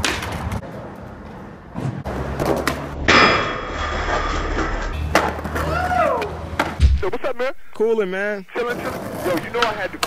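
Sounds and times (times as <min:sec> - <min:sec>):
skateboard grinding on metal rail: 0:02.0 - 0:05.7.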